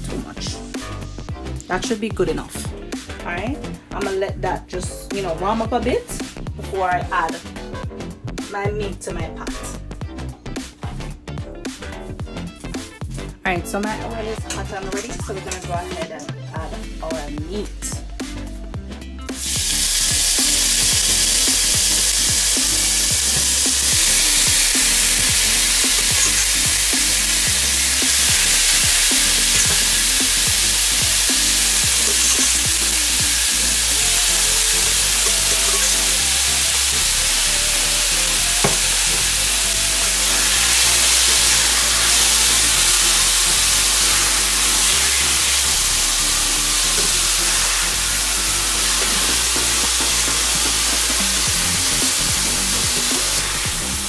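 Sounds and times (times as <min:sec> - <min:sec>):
meat sizzling in hot oil: 0:19.3 - 0:54.0.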